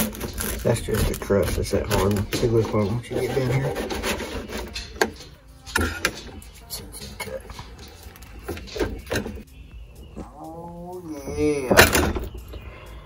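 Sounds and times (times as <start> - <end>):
bread knife sawing: 0.0 - 2.3, 3.1 - 4.8
bread crust crackling: 0.0 - 2.7.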